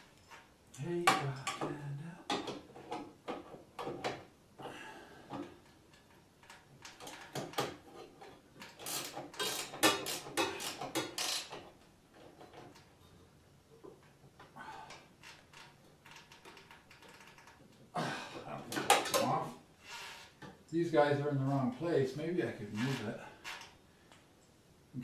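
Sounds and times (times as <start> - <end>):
metal hardware clinking and rattling: 18.6 - 19.5.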